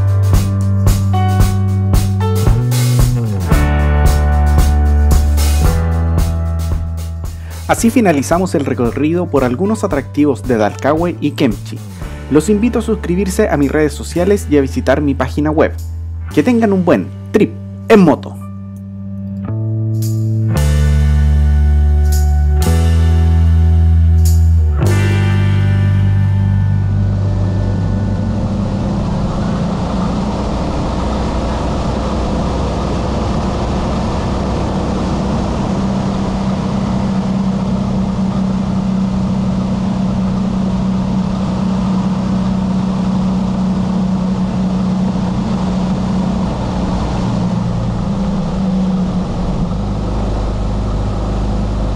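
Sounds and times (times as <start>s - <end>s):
motorcycle engine cruising: 0.0s - 14.3s, 20.0s - 51.9s
wind and road noise: 26.1s - 51.9s.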